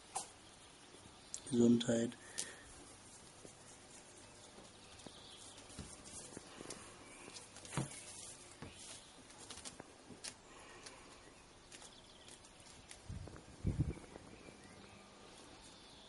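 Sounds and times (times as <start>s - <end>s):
kitten paws on tiles: 2.3s - 14.6s.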